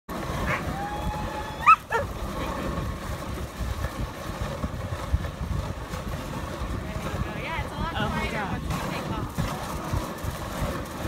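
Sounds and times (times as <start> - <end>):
dog sled rumbling over snow: 0.1 - 11.0
dog yelping: 0.4 - 0.7, 1.6 - 2.1.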